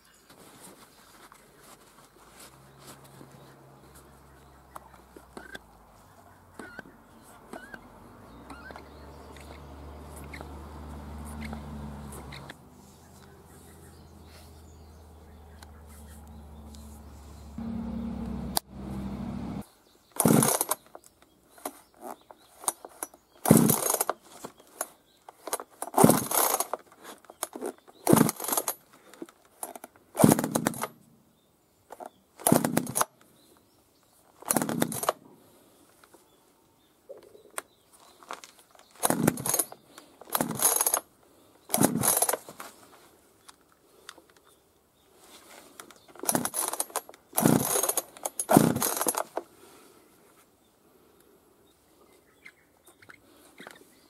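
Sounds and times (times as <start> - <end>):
chainsaw engine turning over: 20.2 - 21.0, 22.6 - 24.2, 25.4 - 28.9, 29.6 - 31.0, 32.4 - 33.1, 34.4 - 35.2, 38.2 - 41.1, 41.7 - 42.7, 46.2 - 49.5
chainsaw recoil starter pulls: 20.2 - 31.0, 31.9 - 33.1, 34.4 - 35.2, 38.2 - 42.7, 46.2 - 49.5.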